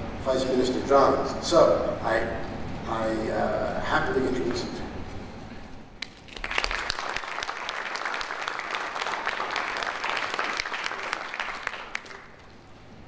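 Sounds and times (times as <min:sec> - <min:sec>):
audience applauding: 0:06.0 - 0:12.6.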